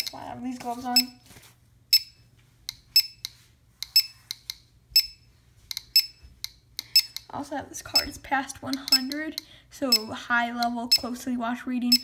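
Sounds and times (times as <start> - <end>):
geiger counter clicking: 1.9 - 7.3, 7.9 - 11.1.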